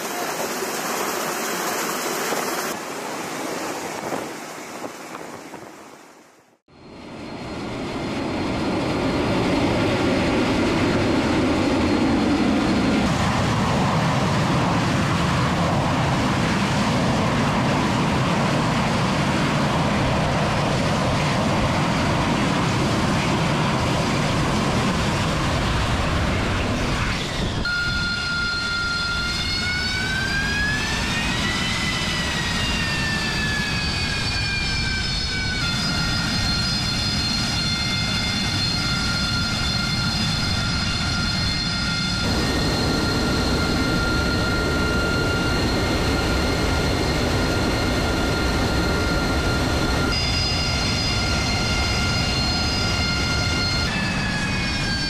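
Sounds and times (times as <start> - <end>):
jet engine high whine: 0.0 - 55.0
jet engine roar: 0.0 - 55.0.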